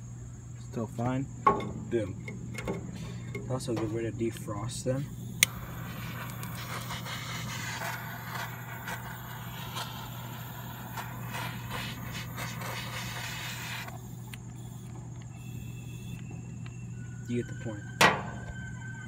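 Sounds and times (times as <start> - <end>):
blowtorch flame hissing: 4.9 - 17.0
blowtorch lighting click: 5.4 - 16.8.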